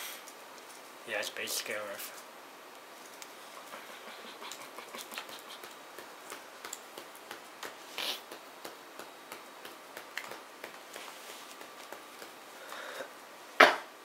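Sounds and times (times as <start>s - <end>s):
cards shuffling and clicking: 4.4s - 12.5s.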